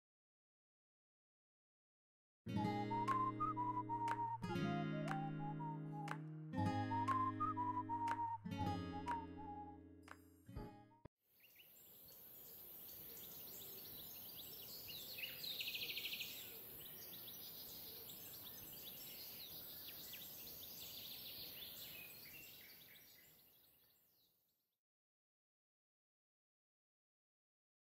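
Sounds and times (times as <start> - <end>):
birds chirping: 11.4 - 23.7.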